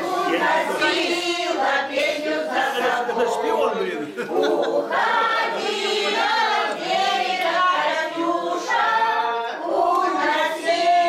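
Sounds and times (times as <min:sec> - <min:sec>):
choir singing unaccompanied: 0:00.0 - 0:11.0.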